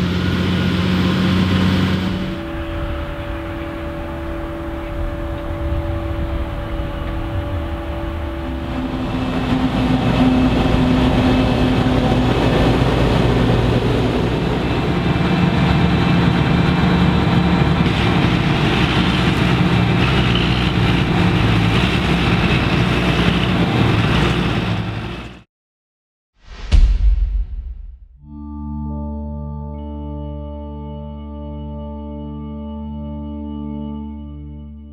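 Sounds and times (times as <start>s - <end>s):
forage harvester working: 0.0s - 25.4s
tractor diesel engine: 0.0s - 25.4s.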